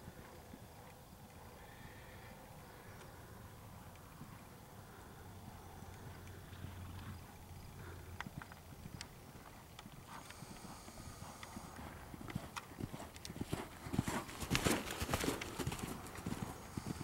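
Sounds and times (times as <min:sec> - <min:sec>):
horse hoofbeats on sand: 0:07.8 - 0:17.0.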